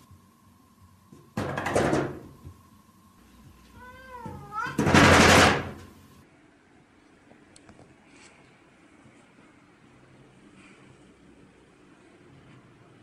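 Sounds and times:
cat meow: 0:03.7 - 0:05.0.

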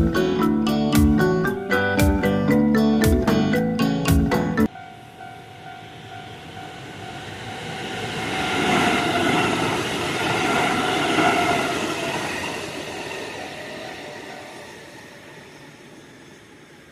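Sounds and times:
electric train passing: 0:00.0 - 0:16.9.

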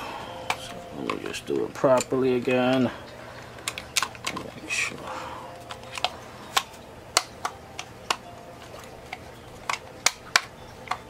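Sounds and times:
plastic clicks and knocks: 0:03.6 - 0:04.6, 0:09.1 - 0:11.0.

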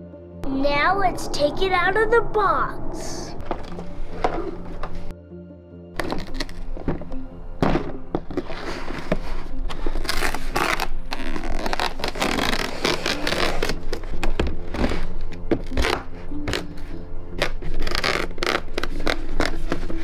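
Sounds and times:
background music: 0:00.0 - 0:20.0
cardboard and plastic parts rustling: 0:06.0 - 0:10.6.

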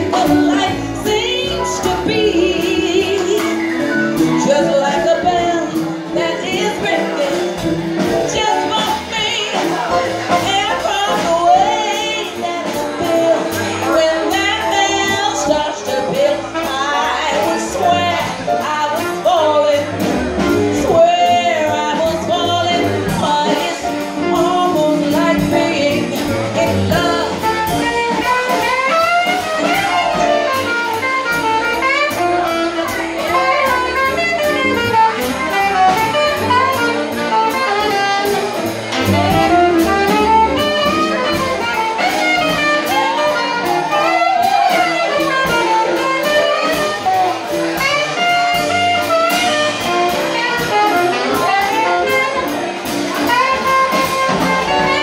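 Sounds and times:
woman singing into microphone: 0:00.0 - 0:20.1, 0:20.7 - 0:28.0
jazz combo backing: 0:00.0 - 0:55.0
saxophone playing: 0:24.2 - 0:55.0.

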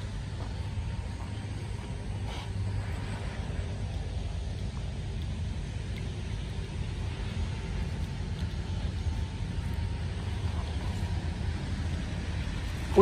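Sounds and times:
electric fish shocker drone: 0:00.0 - 0:13.0
faint thin whine: 0:00.0 - 0:13.0.

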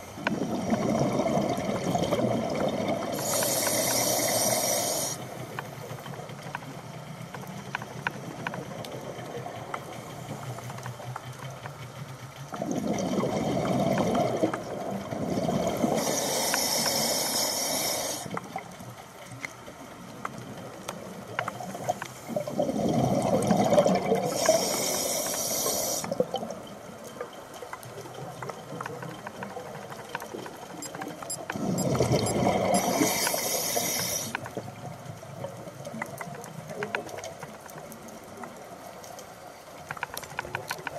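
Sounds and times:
faint underwater hiss: 0:00.0 - 0:29.9, 0:32.4 - 0:40.9
diver exhaling bubbles: 0:00.3 - 0:05.1, 0:12.6 - 0:17.1, 0:22.3 - 0:24.9
air hissing through regulator: 0:03.1 - 0:05.4, 0:15.9 - 0:18.4, 0:24.3 - 0:26.1, 0:32.7 - 0:34.4.

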